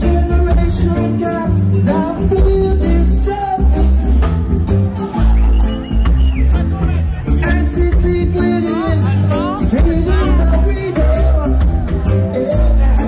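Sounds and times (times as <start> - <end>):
person singing: 0.0 - 4.2, 7.2 - 13.0
heavy bass line: 0.0 - 13.0
live reggae band playing: 0.0 - 13.0.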